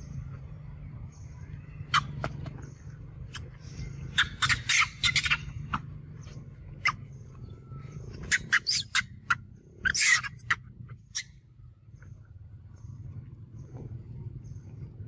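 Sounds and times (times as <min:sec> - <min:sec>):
low steady hum: 0:00.0 - 0:15.0
macaques squealing: 0:01.8 - 0:02.6, 0:03.3 - 0:06.0, 0:06.7 - 0:07.1, 0:08.2 - 0:11.4.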